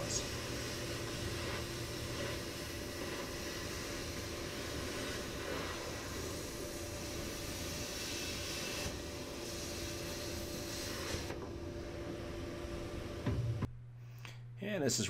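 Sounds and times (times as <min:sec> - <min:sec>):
plasma cutter hissing: 0:00.0 - 0:11.4
constant hum with steady tones: 0:00.0 - 0:15.0.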